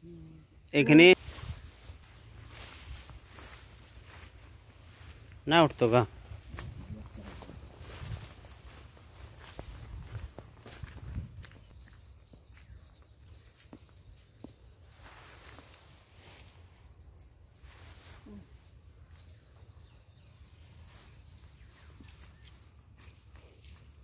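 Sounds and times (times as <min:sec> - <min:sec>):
insects chirping: 0:00.0 - 0:24.0.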